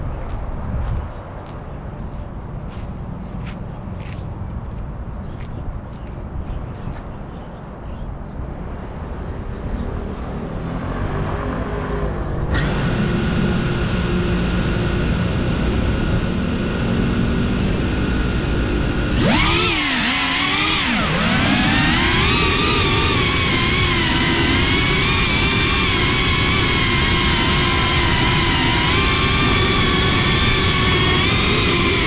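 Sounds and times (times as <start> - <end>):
drone motors whining: 10.1 - 32.0.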